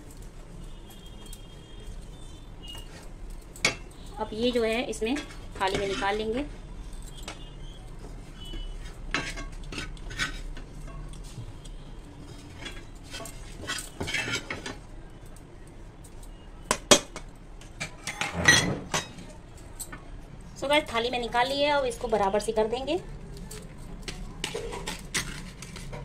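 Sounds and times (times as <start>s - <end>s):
spoon scraping frying pan: 5.0s - 6.5s, 8.0s - 11.3s, 12.2s - 14.8s, 24.0s - 26.0s.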